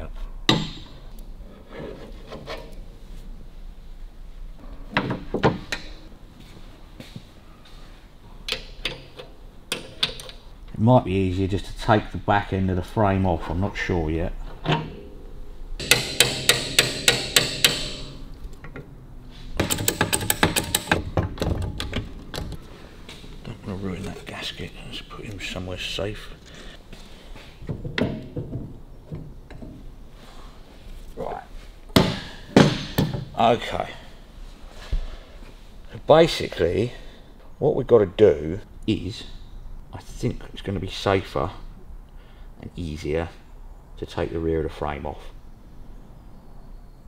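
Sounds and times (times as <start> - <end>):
sharp knocks: 15.8 - 18.2, 31.9 - 33.4.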